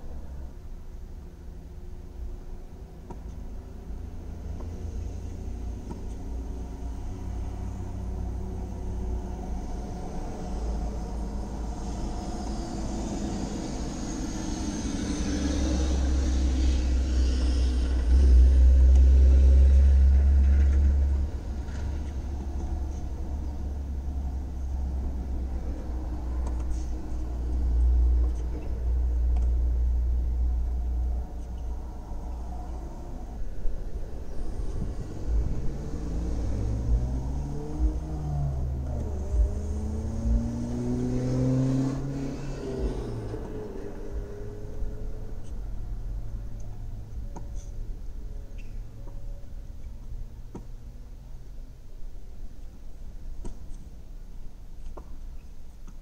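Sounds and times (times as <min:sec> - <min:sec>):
low rumble inside car: 0:00.0 - 0:56.0
vehicle passing: 0:04.0 - 0:47.2.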